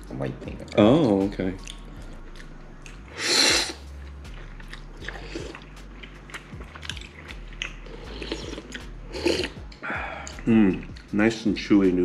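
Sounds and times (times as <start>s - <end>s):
chewing with wet mouth clicks: 0.5s - 11.2s
man slurping noodles: 3.2s - 3.8s.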